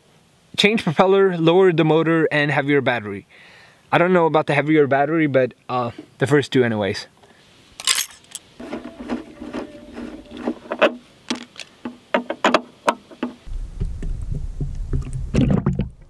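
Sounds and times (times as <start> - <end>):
light clicks and knocks: 8.3 - 13.5
low steady rumble: 13.4 - 16.0.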